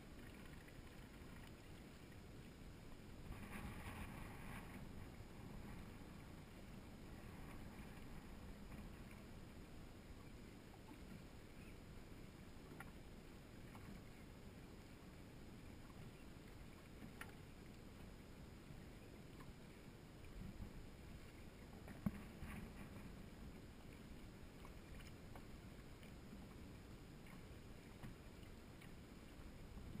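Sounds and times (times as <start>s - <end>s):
faint wind: 0.0s - 30.0s
water around a boat: 0.0s - 30.0s
faint clicks: 12.6s - 13.0s, 15.9s - 17.9s, 19.3s - 19.6s, 21.7s - 30.0s.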